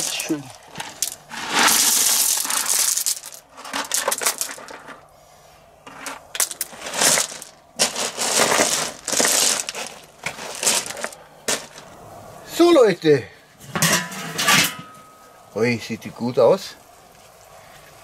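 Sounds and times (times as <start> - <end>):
pebbles poured onto gravel: 0.0 - 5.0, 5.9 - 12.0.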